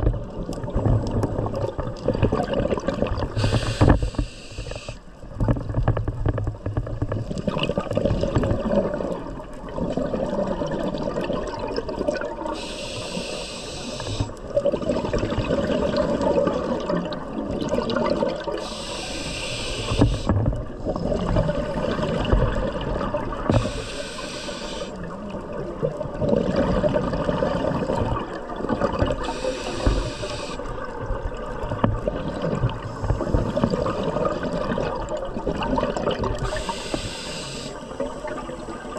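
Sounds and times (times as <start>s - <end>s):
exhaled bubbles rumbling: 0.0s - 12.7s, 13.9s - 19.0s, 19.7s - 37.0s
diver inhaling through regulator: 3.3s - 5.1s, 12.5s - 14.4s, 18.6s - 20.3s, 23.5s - 25.0s, 29.2s - 30.7s, 36.4s - 38.9s.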